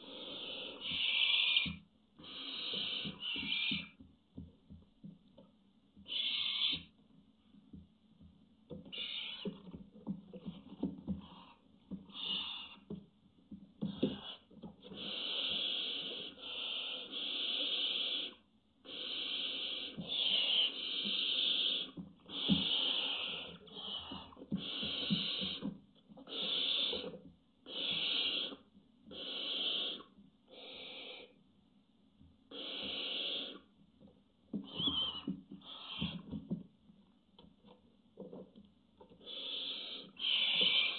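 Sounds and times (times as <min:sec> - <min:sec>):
owls hissing: 0:00.0 - 0:04.0, 0:06.1 - 0:06.9, 0:08.9 - 0:09.5, 0:11.2 - 0:12.8, 0:13.9 - 0:31.4, 0:32.5 - 0:33.7, 0:34.6 - 0:36.3, 0:39.2 - 0:40.9.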